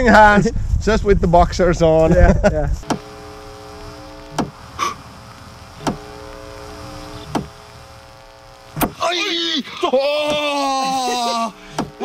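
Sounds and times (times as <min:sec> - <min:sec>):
steady hum: 0:02.1 - 0:12.0
electric fence ticks: 0:02.8 - 0:09.0.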